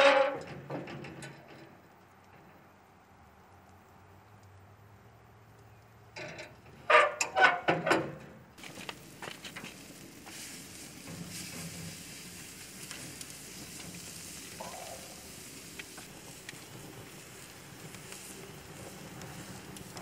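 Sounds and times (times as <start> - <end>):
meat sizzling on a grill: 8.6 - 20.0.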